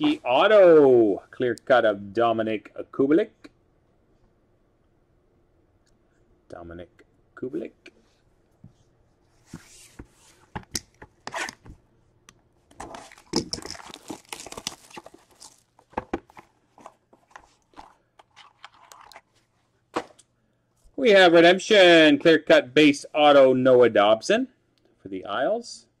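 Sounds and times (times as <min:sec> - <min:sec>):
cards clicking and rustling: 0:12.7 - 0:19.3
card packaging tearing and crinkling: 0:12.8 - 0:15.9.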